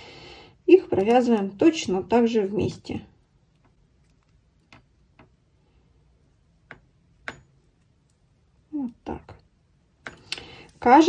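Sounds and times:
metal knitting needles clicking: 0.8s - 1.8s.

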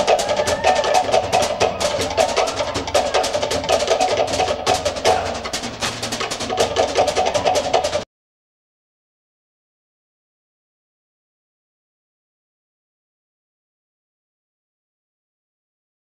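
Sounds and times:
bass drum: 0.0s - 8.0s
wooden slit drums fast rhythm: 0.0s - 8.0s.

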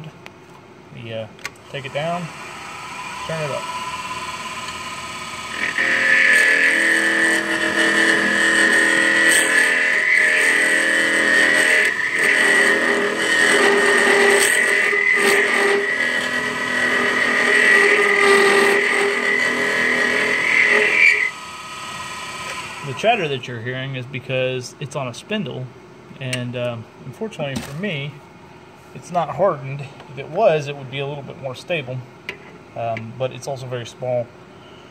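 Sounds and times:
lathe chatter squeal: 1.8s - 21.4s.

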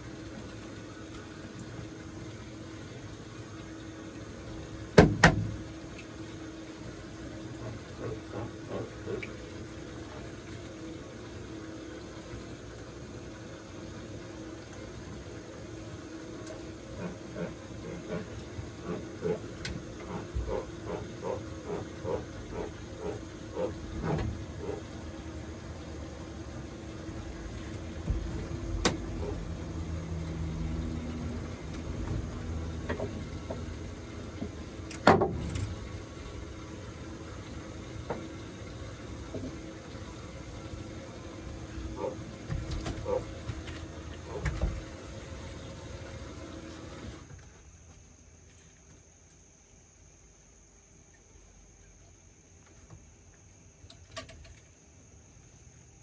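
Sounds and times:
steady low hum: 0.0s - 56.0s
knocks on a boat deck: 5.0s - 5.6s.

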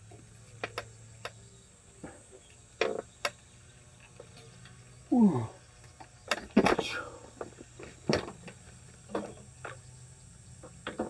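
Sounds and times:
falling vocal sound: 5.1s - 5.6s.

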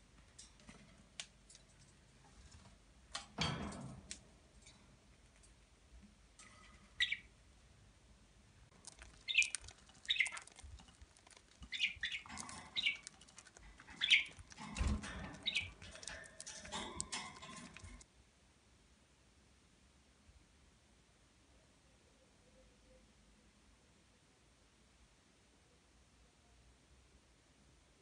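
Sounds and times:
budgerigars chirping: 8.8s - 18.0s.

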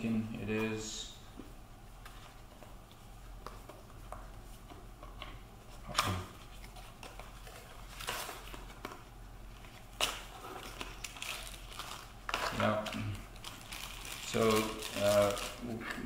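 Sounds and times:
paper rustling: 6.3s - 16.0s.

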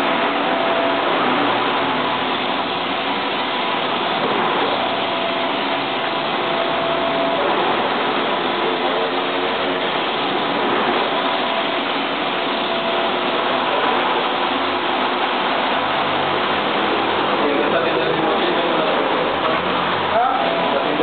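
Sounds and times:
print-head motor whine: 0.0s - 21.0s.

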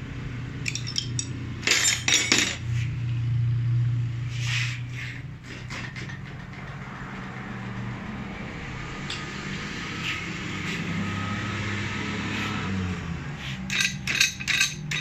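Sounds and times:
faint clicks of metal parts: 0.6s - 2.6s, 13.7s - 15.0s
low machinery drone: 2.6s - 14.0s.

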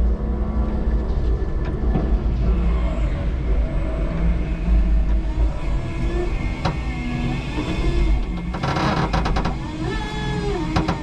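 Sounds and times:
forklift motor whine: 2.6s - 11.0s.

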